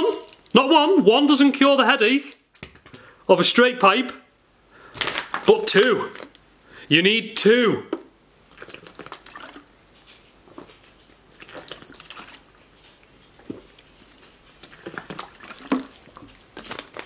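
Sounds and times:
plastic bottle crackling: 0.0s - 1.6s, 4.9s - 6.4s, 13.4s - 17.0s
gulping water from bottle: 8.5s - 9.7s, 11.3s - 12.5s, 14.6s - 17.0s.

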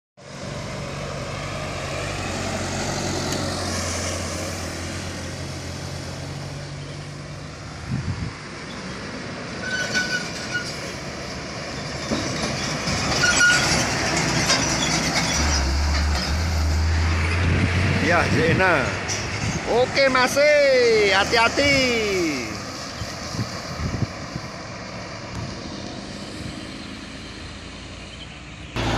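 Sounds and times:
diesel truck engine: 0.2s - 28.9s
tractor-trailer passing close: 0.2s - 28.9s
truck rattling: 9.5s - 23.3s
short high squeals: 9.6s - 10.9s, 13.1s - 15.8s.

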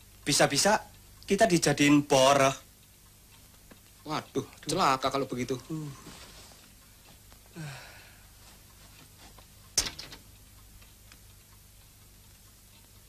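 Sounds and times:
man sighing: 7.5s - 8.3s
door click: 9.8s - 10.3s.

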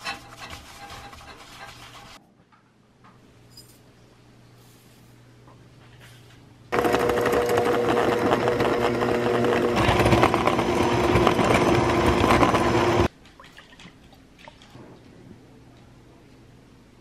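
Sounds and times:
electric hand mixer whipping: 6.7s - 13.1s.

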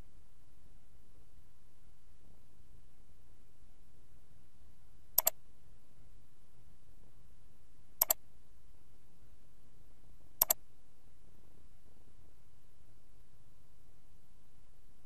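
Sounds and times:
low background noise: 0.0s - 15.0s
mouse button clicks: 8.0s - 8.2s, 10.4s - 10.6s.

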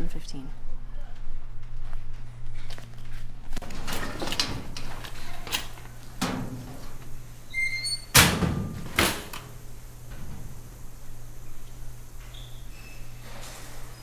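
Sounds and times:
metal locker banging: 3.6s - 7.0s, 7.6s - 9.6s.

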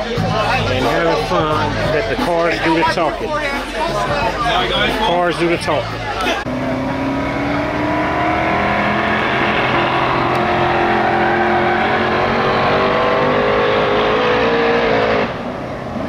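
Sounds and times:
race car engine revving: 4.2s - 16.0s.

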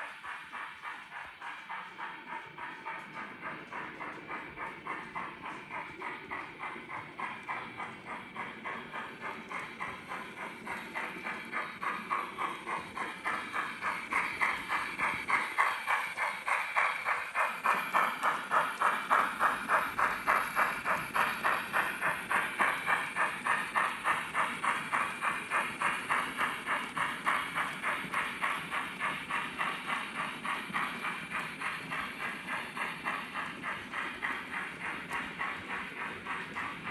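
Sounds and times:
steam locomotive exhaust chuffing: 0.0s - 36.9s.

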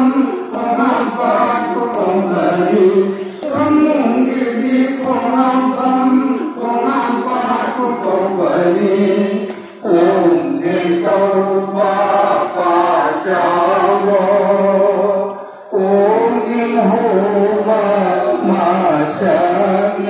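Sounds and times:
men chanting in unison: 0.0s - 20.0s.

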